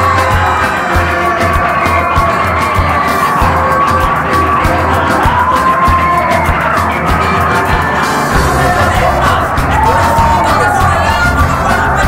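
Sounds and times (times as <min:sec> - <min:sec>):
audience cheering and shouting: 0:00.0 - 0:12.0
loud music with heavy bass: 0:00.0 - 0:12.0.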